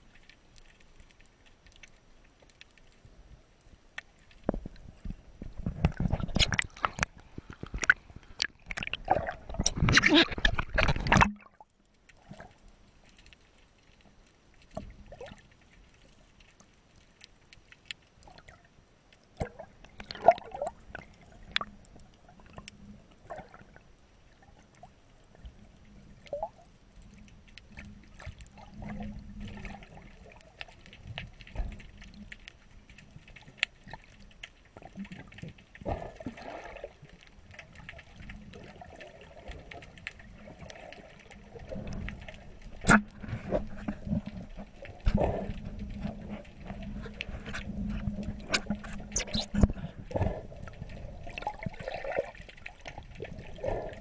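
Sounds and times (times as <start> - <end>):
underwater gurgles and bubbles: 0.0 - 54.0
water splashing against camera: 4.0 - 14.0, 25.8 - 54.0.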